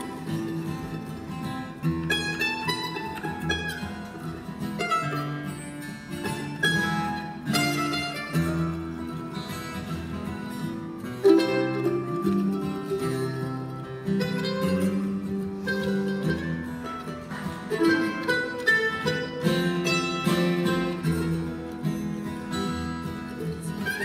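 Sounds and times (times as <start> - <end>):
acoustic guitar: 0.0 - 24.0
mandolin: 0.0 - 24.0.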